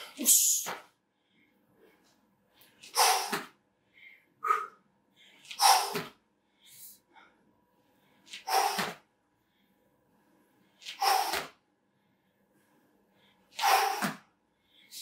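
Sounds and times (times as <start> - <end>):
person exhaling forcefully: 3.0 - 3.4, 13.6 - 14.2.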